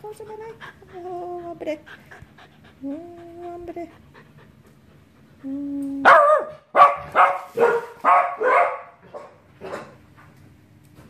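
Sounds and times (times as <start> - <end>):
dog barking: 6.1 - 9.9.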